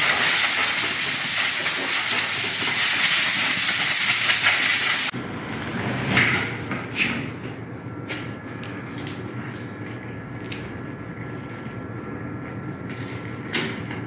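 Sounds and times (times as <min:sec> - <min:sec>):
compressed air hissing: 0:00.0 - 0:05.1.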